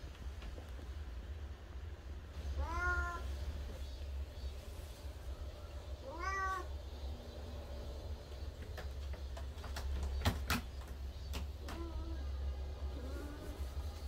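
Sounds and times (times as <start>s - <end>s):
faint cat call: 2.5s - 3.3s, 5.9s - 6.8s
cat meowing: 2.6s - 3.3s, 6.0s - 6.8s.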